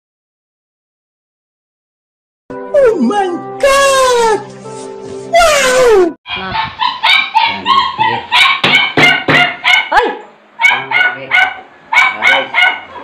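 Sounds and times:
small dog yapping: 0:05.6 - 0:13.0.

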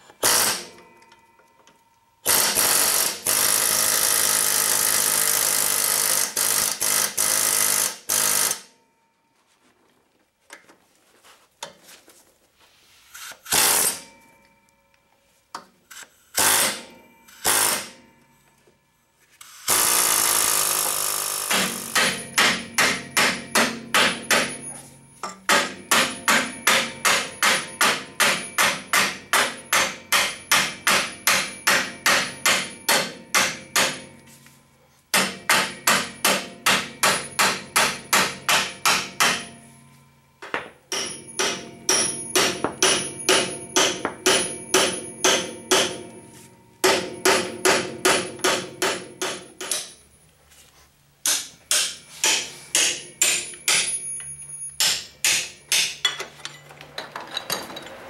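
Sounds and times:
hammer striking steel: 0:16.3 - 0:18.5, 0:19.8 - 0:34.3, 0:35.1 - 0:50.1, 0:51.2 - 0:56.6.

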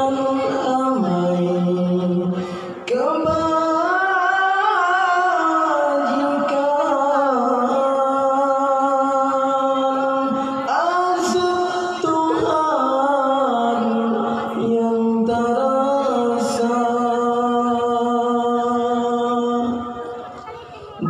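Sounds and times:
man singing religious song: 0:00.0 - 0:20.3.

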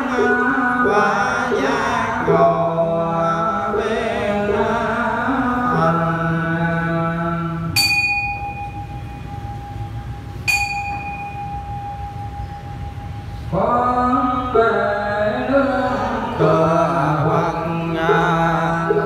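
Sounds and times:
group chanting on held notes: 0:00.0 - 0:06.6
bell struck and ringing: 0:07.8 - 0:13.5.

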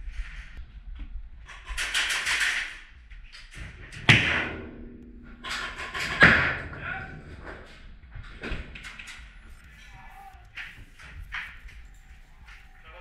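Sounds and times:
sharp knocks: 0:04.0 - 0:07.8.

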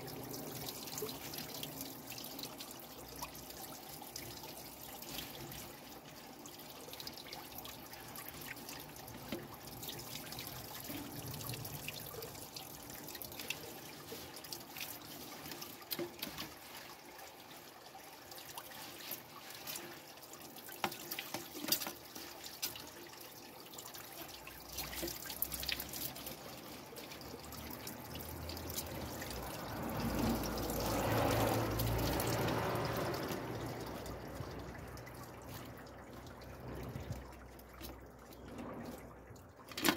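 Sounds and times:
hands rinsing leaves: 0:00.0 - 0:39.9
water trickling from a tap: 0:00.0 - 0:39.9.

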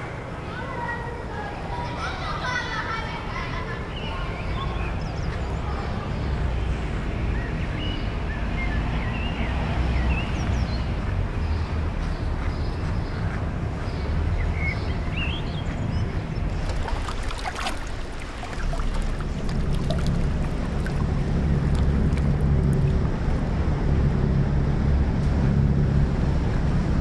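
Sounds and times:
low rumbling noise: 0:15.8 - 0:27.0.

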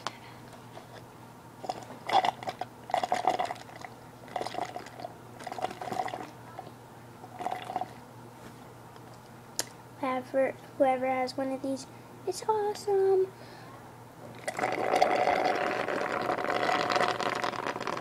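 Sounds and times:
slurping water through straw: 0:14.4 - 0:18.0.

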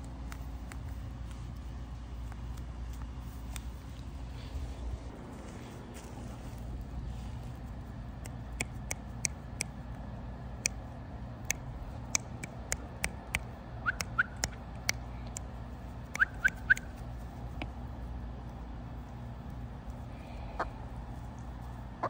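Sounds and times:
steady low rumble: 0:00.0 - 0:22.0
chickens clicking: 0:11.4 - 0:17.8
chickens chirping: 0:20.1 - 0:21.0.

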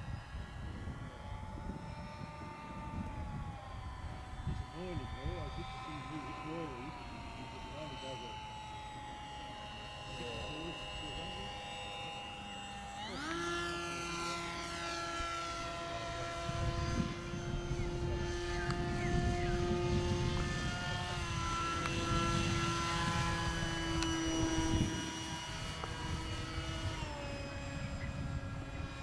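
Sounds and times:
model airplane motor whining: 0:00.0 - 0:29.0.

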